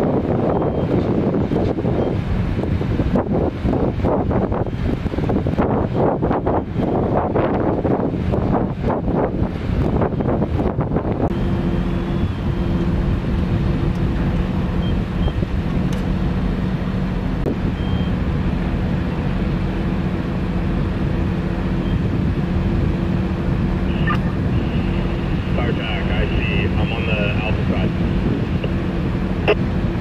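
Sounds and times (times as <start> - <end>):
diesel engine running: 0.0 - 30.0
short high beeps: 23.9 - 25.0.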